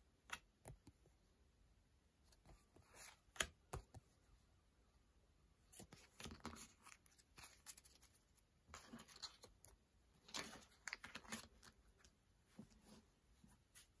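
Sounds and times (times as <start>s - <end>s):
paper stickers rustling: 5.8s - 12.2s.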